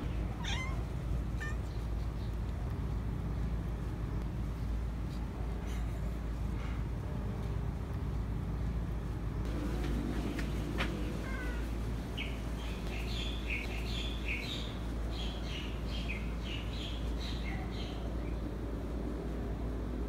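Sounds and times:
steady low hum: 0.0s - 20.0s
cat chirping mews: 0.3s - 1.9s.

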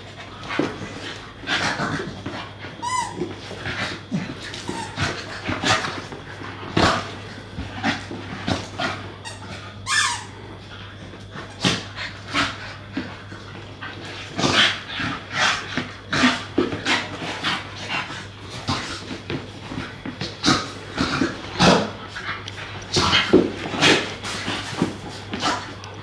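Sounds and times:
dogs play-fighting: 0.0s - 26.0s
dog whining: 2.8s - 3.5s, 9.2s - 10.4s.

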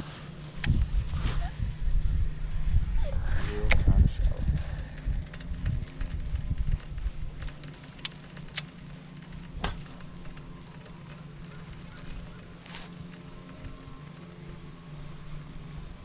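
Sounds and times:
steady low hum: 0.0s - 16.0s
wind on microphone: 0.6s - 7.5s
sharp ticks: 3.7s - 16.0s
fishing reel cranking: 4.0s - 16.0s.

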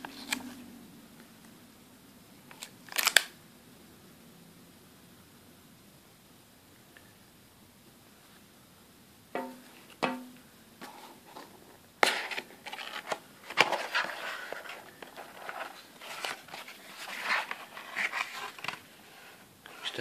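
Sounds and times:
cardboard scraping and rustling: 10.8s - 20.0s.

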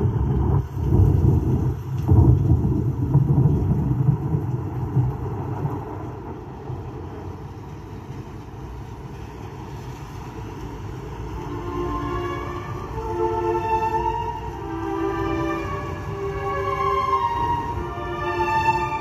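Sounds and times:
deep thunder-like rumbling: 0.0s - 8.9s.

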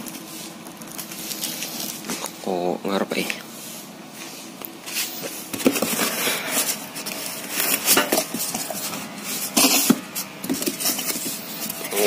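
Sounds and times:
rustling of cardboard and packaging: 0.0s - 12.0s.

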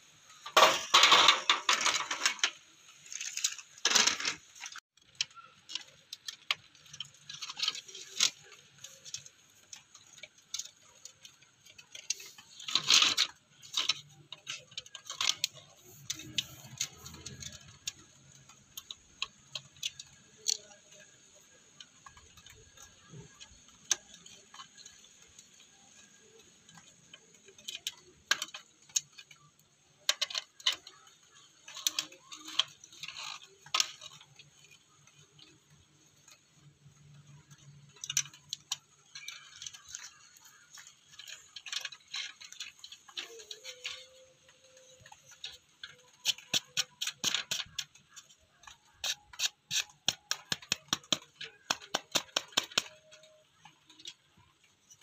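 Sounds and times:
screwdriver clicks and scrapes on plastic: 44.8s - 54.2s.

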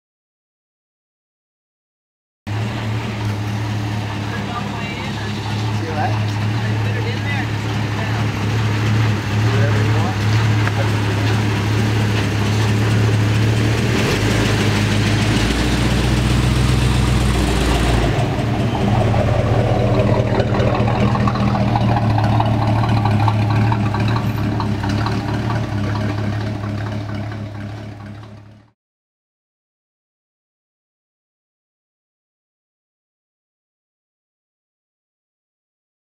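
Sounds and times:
pickup truck engine running: 2.5s - 28.7s
deeper engine note: 2.5s - 28.8s.

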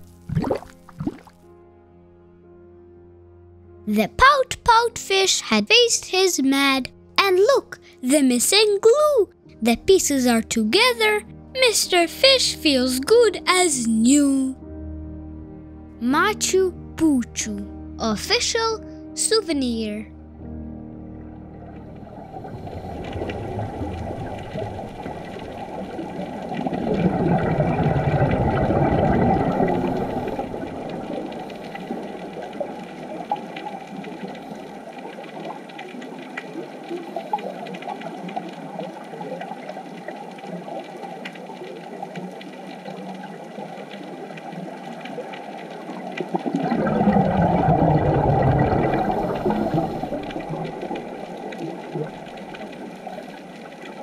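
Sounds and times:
muffled underwater water rush: 21.0s - 54.0s.

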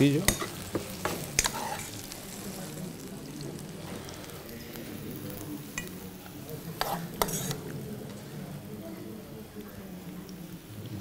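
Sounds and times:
mushrooms sizzling in oil: 0.0s - 11.0s
metal spoon stirring and scraping: 0.1s - 2.4s, 5.6s - 7.9s.

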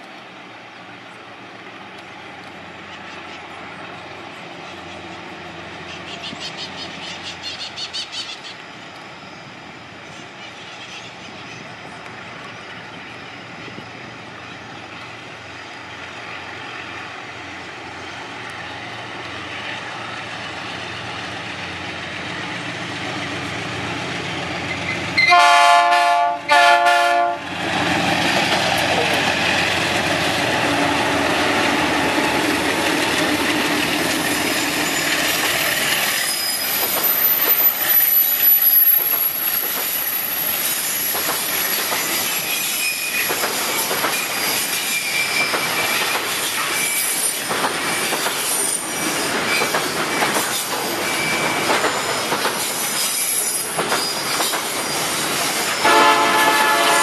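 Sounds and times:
diesel train rumbling: 0.0s - 57.0s
train horn blasts: 25.2s - 27.5s, 55.8s - 57.0s.

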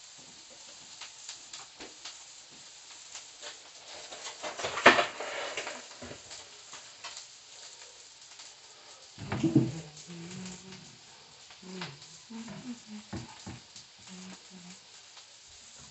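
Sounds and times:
clicks and knocks at kitchen counter: 9.2s - 9.8s.

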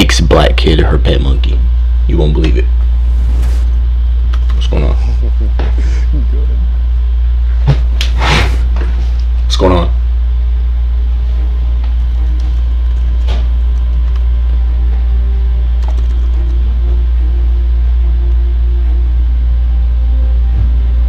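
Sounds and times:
loud steady low drone: 0.0s - 21.0s
faint suspenseful music: 9.9s - 21.0s.

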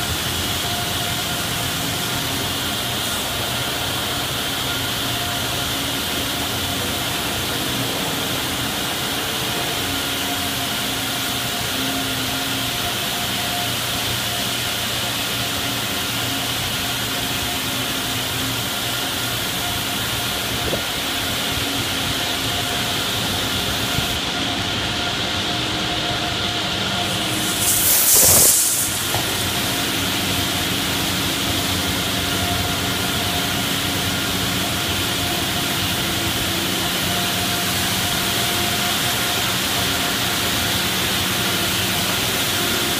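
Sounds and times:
high-pressure spray hissing: 0.0s - 24.2s, 26.4s - 42.9s
faint motor and pump hum: 0.0s - 42.9s
water spray and spinning brushes: 27.0s - 42.9s.

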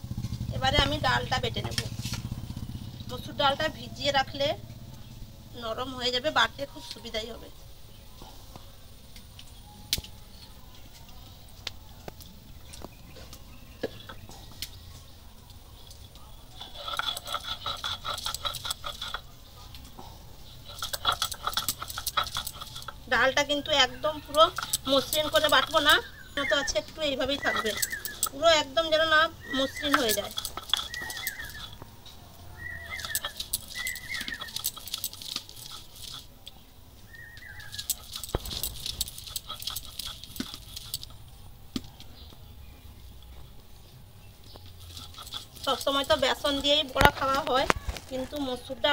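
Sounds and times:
bird chirping: 0.0s - 48.9s
stone roller grinding lentils: 15.8s - 41.9s, 44.5s - 48.7s
light clinks: 27.4s - 28.4s.

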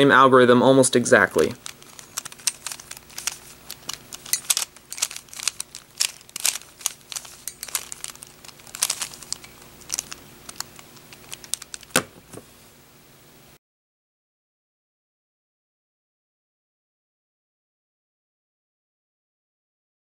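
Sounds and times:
puzzle cube layers clicking: 1.4s - 12.1s
cube knocking on wooden table: 11.9s - 12.3s.

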